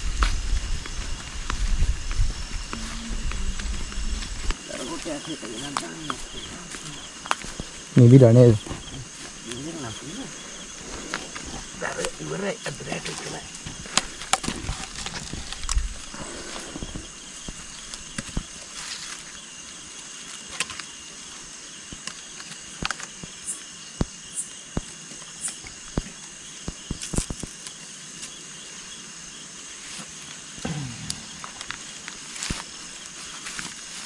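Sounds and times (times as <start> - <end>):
night insects chirring: 0.0 - 34.0.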